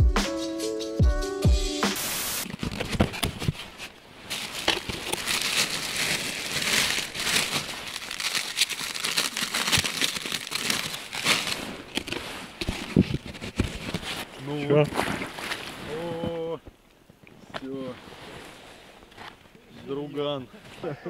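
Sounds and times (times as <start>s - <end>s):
static hiss: 1.8s - 2.6s
plastic bag and foil crinkling: 2.4s - 14.3s.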